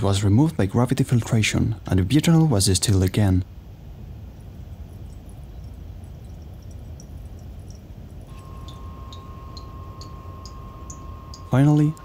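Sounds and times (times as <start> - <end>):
liquid pouring through funnel: 3.6 - 11.6
high-pitched hum: 4.8 - 12.0
soft ticks: 5.0 - 7.9.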